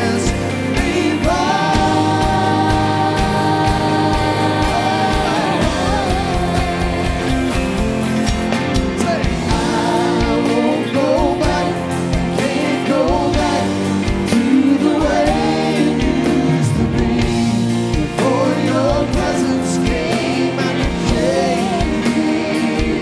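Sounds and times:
backing instruments: 0.0 - 23.0
lead vocal singing: 0.0 - 23.0
steady drum beat: 0.0 - 23.0.

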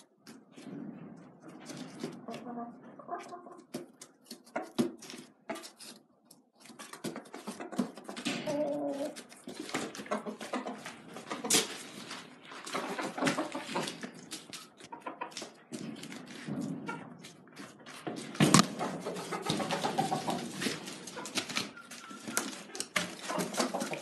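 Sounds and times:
chickens squawking: 1.8 - 6.0, 6.6 - 15.6, 18.5 - 24.0.

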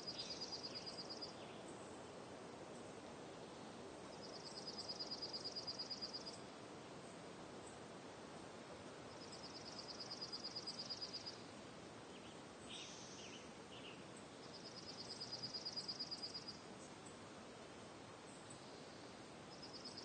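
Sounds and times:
steady soft hiss: 0.0 - 20.0.

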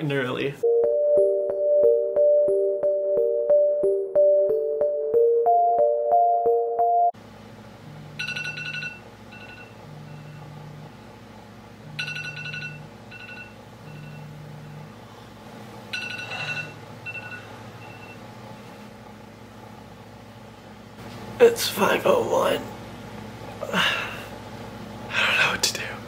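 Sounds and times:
phone alarm chime: 8.2 - 10.4, 12.0 - 14.3, 15.9 - 18.2
phone vibration buzzing: 8.2 - 10.8, 11.8 - 14.9, 15.9 - 18.2.

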